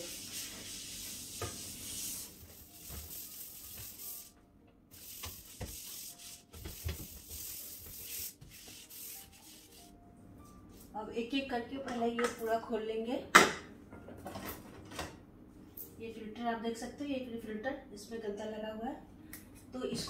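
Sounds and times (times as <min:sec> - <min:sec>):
sponge scrubbing metal tub: 0:00.0 - 0:04.3, 0:04.9 - 0:09.8.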